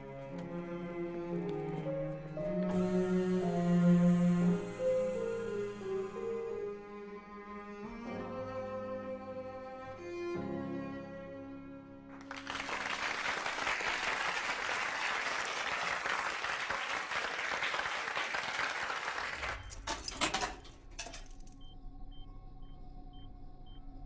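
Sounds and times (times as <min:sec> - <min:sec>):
cello bowed notes: 0:00.0 - 0:12.1
audience applauding: 0:12.1 - 0:19.8.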